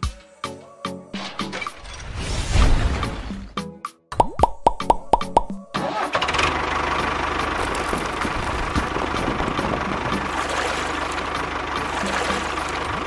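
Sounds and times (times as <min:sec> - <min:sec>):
engine idling: 0:05.8 - 0:13.0.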